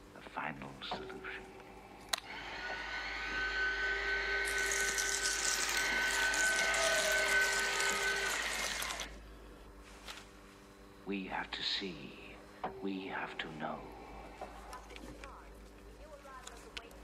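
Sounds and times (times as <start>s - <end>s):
bone drill whining: 2.1s - 9.2s
drill grinding: 2.1s - 9.2s.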